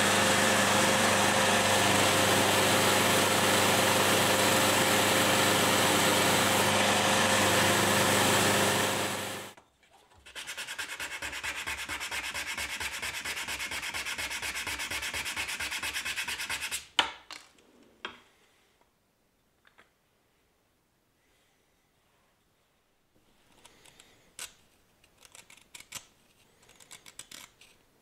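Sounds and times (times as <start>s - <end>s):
electric power tool running: 0.0s - 9.6s
hand sanding wood: 0.0s - 9.6s, 10.2s - 16.8s.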